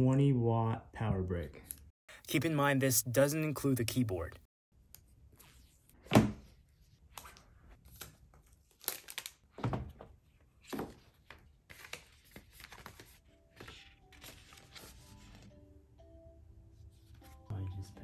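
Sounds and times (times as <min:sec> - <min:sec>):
soft background music: 0:12.8 - 0:18.0.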